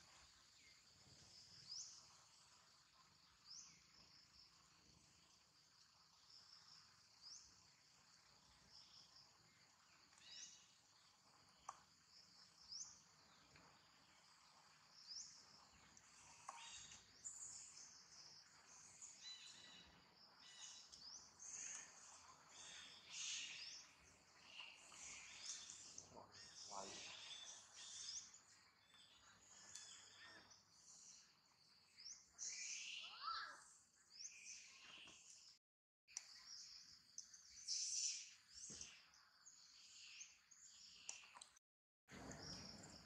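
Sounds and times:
insects chirring: 0:00.1 - 0:33.2.

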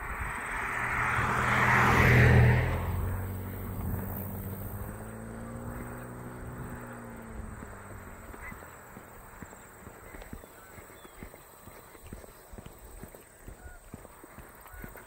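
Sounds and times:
car passing by: 0:00.0 - 0:11.9.

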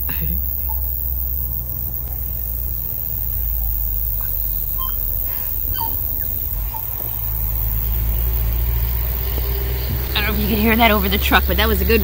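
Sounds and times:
truck rumbling past: 0:01.1 - 0:12.0
bird whistling notes: 0:03.5 - 0:11.0.

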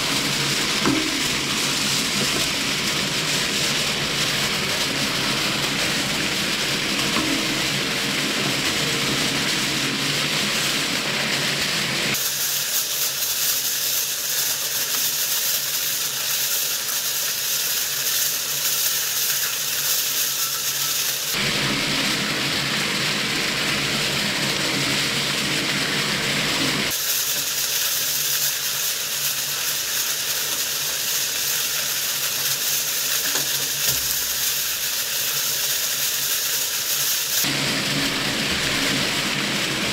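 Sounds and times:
machine hum: 0:00.0 - 0:12.2, 0:20.4 - 0:27.0, 0:37.4 - 0:39.9
shredder tearing foil: 0:00.0 - 0:39.9.

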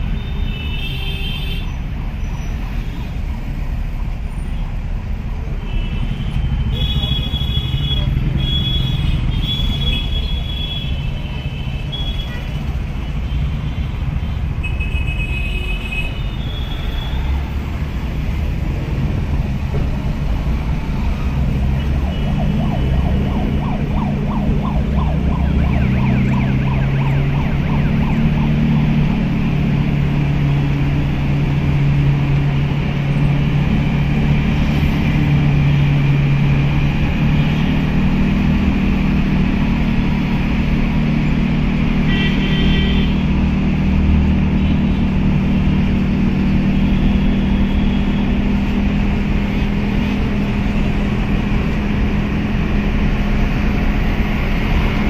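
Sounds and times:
car engine hum and road noise: 0:17.1 - 0:55.0.

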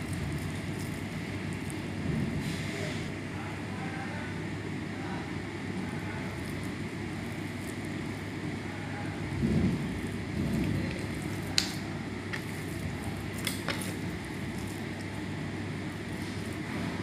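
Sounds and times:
steady low rumble: 0:04.7 - 0:17.0.

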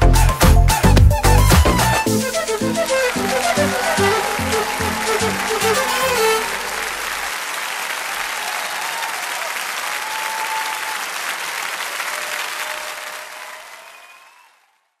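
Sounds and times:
audience applauding: 0:00.8 - 0:15.0.

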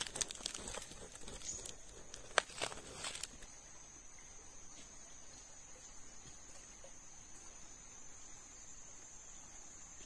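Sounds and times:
hand scraping dry soil: 0:00.0 - 0:03.5.

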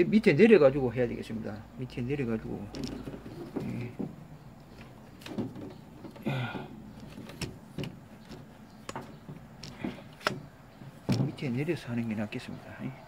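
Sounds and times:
plastic shell knocks and clunks: 0:02.6 - 0:11.5.

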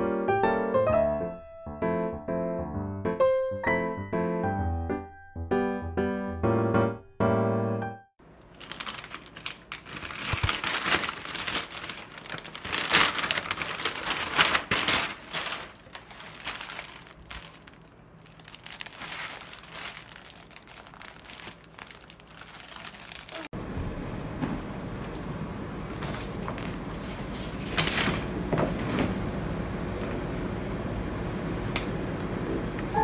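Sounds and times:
crinkling and rustling: 0:08.4 - 0:23.5, 0:25.9 - 0:29.4.

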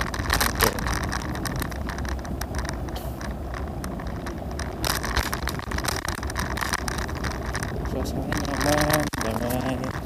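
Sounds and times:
scooter rolling over pavement: 0:00.0 - 0:10.0.

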